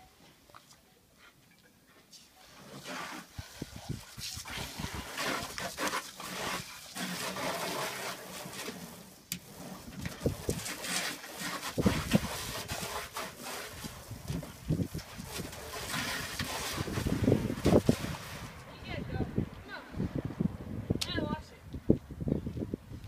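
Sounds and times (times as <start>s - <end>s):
water spraying from hose: 2.1s - 18.7s
water splashing onto car: 2.7s - 18.7s.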